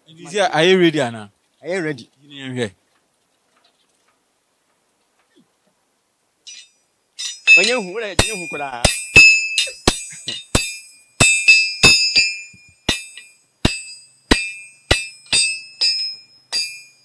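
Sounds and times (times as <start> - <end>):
hammer striking iron on anvil: 6.5 - 17.0.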